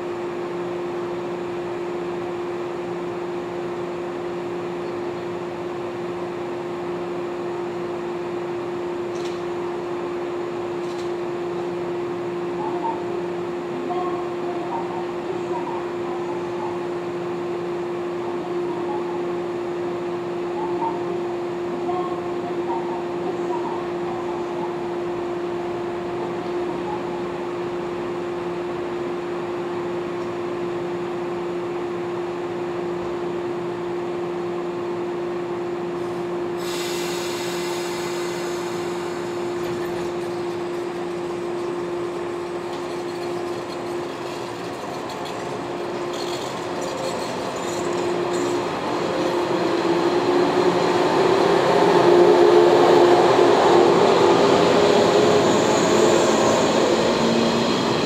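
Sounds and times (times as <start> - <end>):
electric train humming: 0.0 - 58.0
train air hiss: 36.0 - 40.1
train motor whine rising: 36.6 - 58.0.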